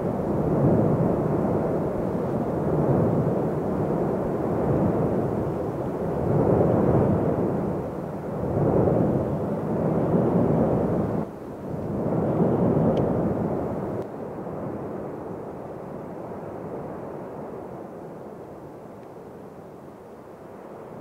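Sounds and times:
lava fountains roaring: 0.0 - 14.0.

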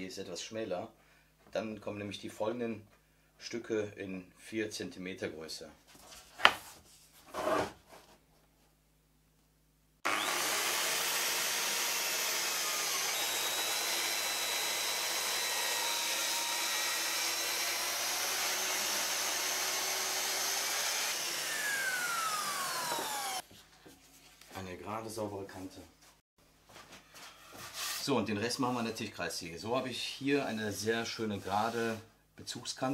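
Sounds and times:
circular saw cutting wood: 10.0 - 23.4
saw blade spinning down: 10.1 - 23.4.

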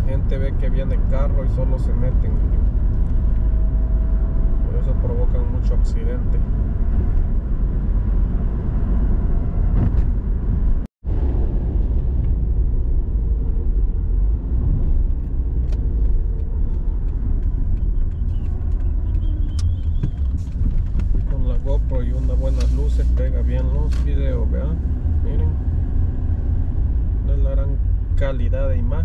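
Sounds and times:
car engine rumble: 0.0 - 29.0
tyres on a wet road: 2.2 - 29.0.

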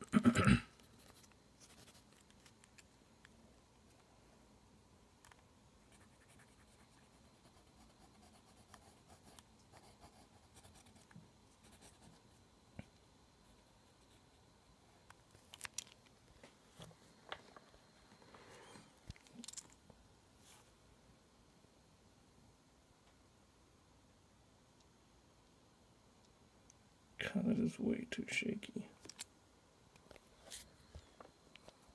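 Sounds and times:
pencil scratching on paper: 0.9 - 2.1, 5.8 - 12.4.

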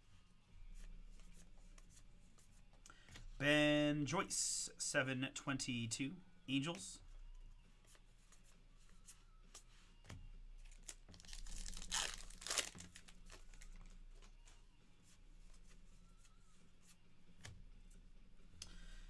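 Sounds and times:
wrapper tearing and crinkling: 10.7 - 13.7.

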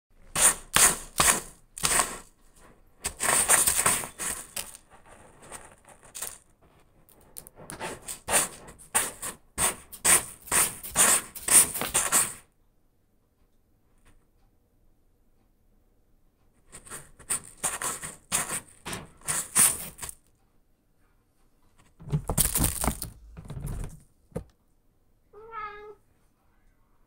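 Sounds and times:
cat scratching litter: 0.2 - 12.5, 16.6 - 20.3.

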